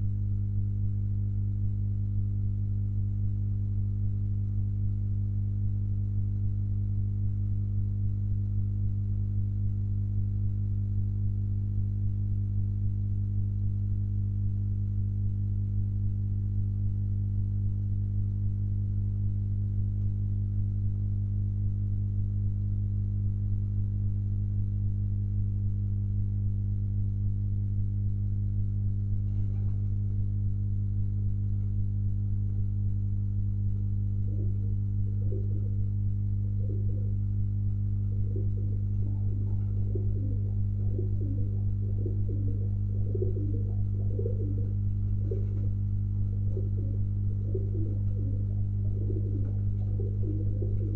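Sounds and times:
low electrical hum: 0.0 - 50.9
faint wavering sound: 34.1 - 45.7, 46.3 - 50.9.

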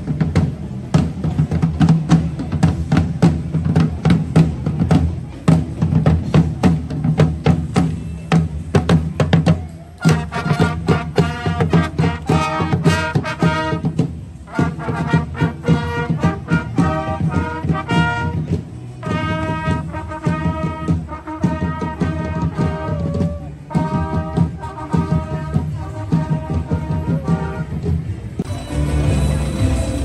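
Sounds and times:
drum beats: 0.0 - 30.0
brass playing held notes: 10.0 - 30.0.

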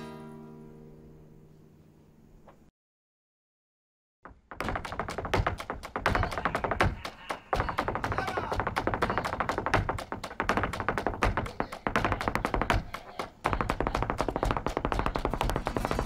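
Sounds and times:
shoes striking hard floor: 4.3 - 16.0.

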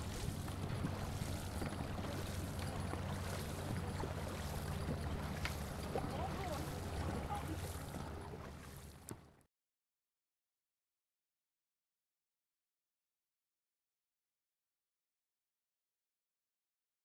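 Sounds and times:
wind rumble on microphone: 0.0 - 8.6
paddles splashing: 0.0 - 9.4
water rushing past boat hull: 0.0 - 9.5.

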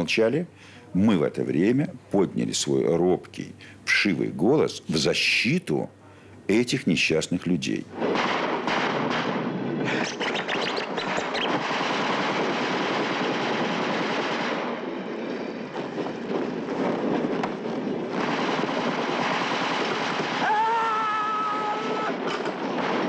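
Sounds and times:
machine-gun and rifle fire: 8.0 - 14.8.

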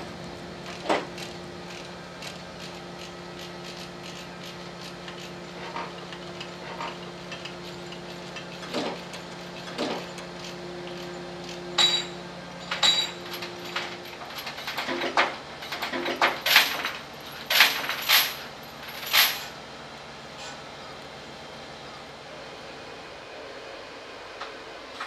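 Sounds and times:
low machine hum: 0.0 - 25.0
sharp metallic clanks and clinks: 3.0 - 19.6.

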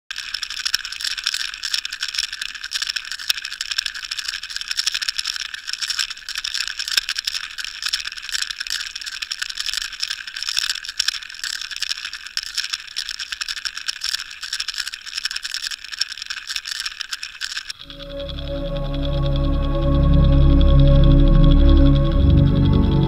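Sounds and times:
faint clicks: 0.1 - 19.7.

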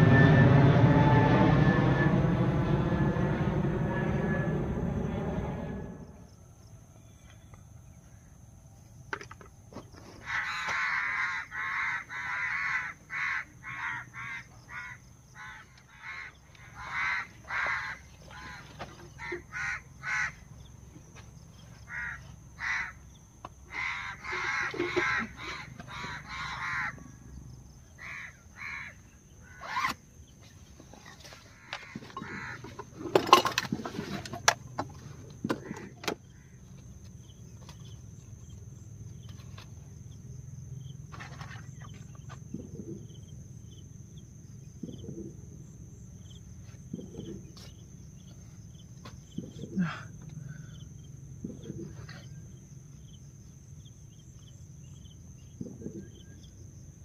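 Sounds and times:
thin high whine: 0.0 - 6.4
crows cawing: 10.2 - 20.5, 21.9 - 23.0, 23.7 - 27.1, 28.0 - 29.7, 31.6 - 32.8, 36.3 - 36.6.

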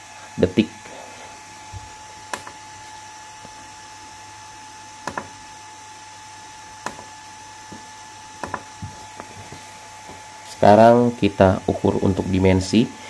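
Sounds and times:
cooling fans whirring: 0.0 - 13.0
thin steady whine: 0.0 - 13.0.

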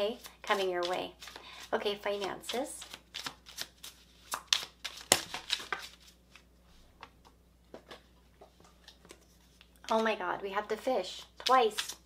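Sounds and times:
cards shuffling and flicking: 0.1 - 8.1, 11.2 - 12.0.

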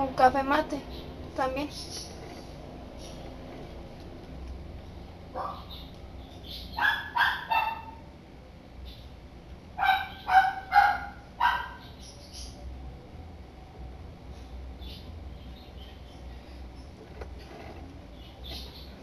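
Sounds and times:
dog barking: 5.3 - 5.7, 6.8 - 8.0, 9.8 - 11.8.

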